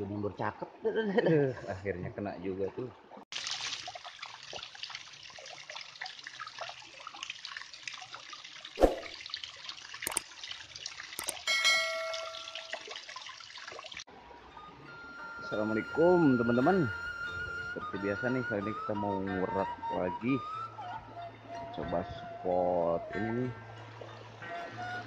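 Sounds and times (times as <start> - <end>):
sharp clicks: 11.2 - 11.4
brief ringing chime: 11.2 - 12.8.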